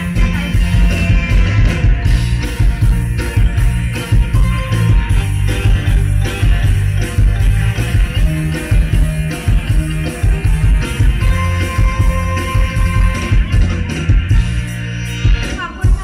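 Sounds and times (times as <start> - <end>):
drum and bass beat: 0.0 - 16.0
live band music over loudspeakers: 0.0 - 16.0.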